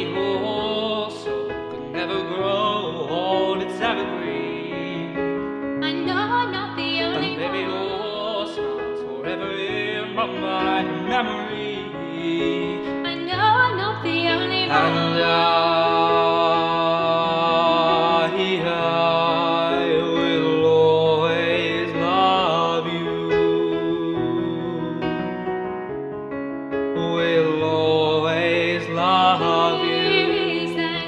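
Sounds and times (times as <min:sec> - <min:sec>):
person singing: 0:00.0 - 0:05.2, 0:05.8 - 0:25.4, 0:27.0 - 0:31.0
sustained musical backing: 0:00.0 - 0:31.0.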